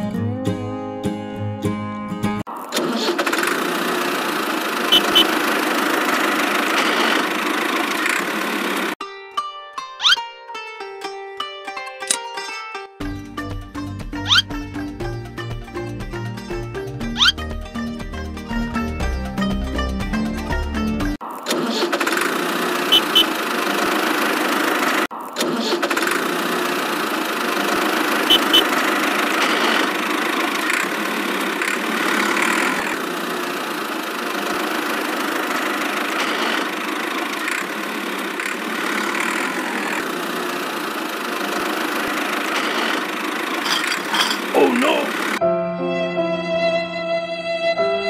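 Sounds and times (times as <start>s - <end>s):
tractor engine running: 2.6s - 9.0s, 21.5s - 45.4s
quick double beep: 4.9s - 5.3s, 28.3s - 28.7s.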